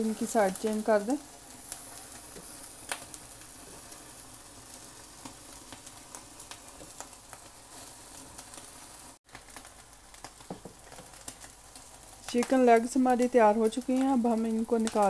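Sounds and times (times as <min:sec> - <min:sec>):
chicken sizzling on a grill: 0:00.0 - 0:15.0.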